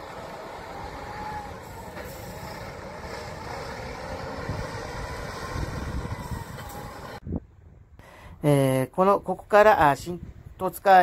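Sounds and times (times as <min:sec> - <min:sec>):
bus diesel engine rumbling: 0:00.0 - 0:07.4.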